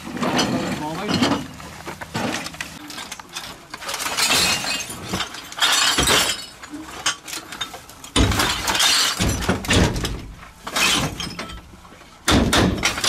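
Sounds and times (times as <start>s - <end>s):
rubbish bags crashing onto truck bed: 8.1s - 11.6s, 12.2s - 13.0s.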